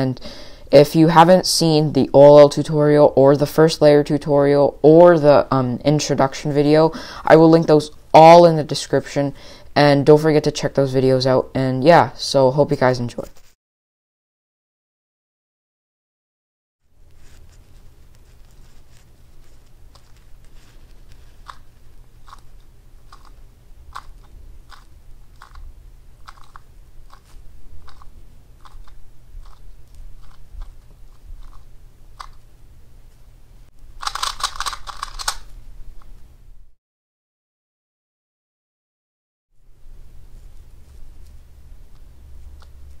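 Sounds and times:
puzzle cube turning clicks: 0:19.5 - 0:32.4, 0:34.0 - 0:35.5.

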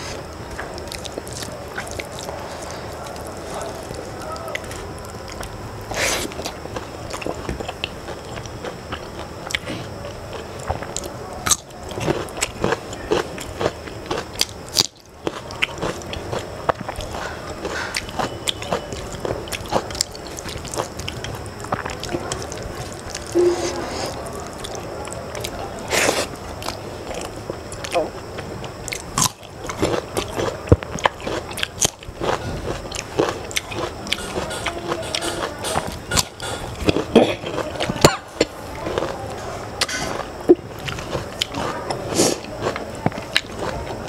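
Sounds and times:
chewing and biting food: 0:00.1 - 0:44.0.

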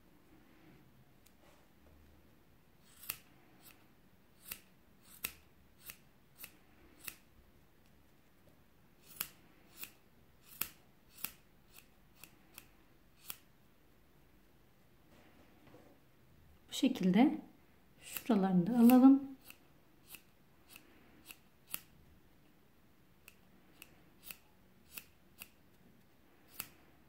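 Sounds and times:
scissors snipping: 0:02.9 - 0:03.8, 0:09.0 - 0:13.4, 0:18.1 - 0:21.9, 0:26.5 - 0:26.8.

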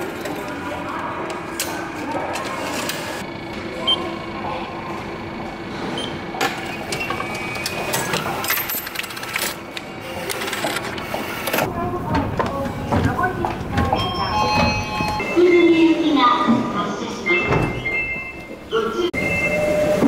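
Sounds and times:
station ambience: 0:00.0 - 0:20.0
ticket machine clicking and whirring: 0:06.1 - 0:11.7.

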